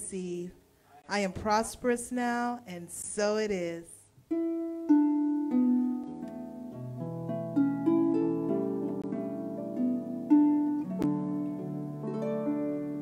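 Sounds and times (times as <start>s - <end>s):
harp: 4.3s - 13.0s
grand piano: 6.0s - 13.0s.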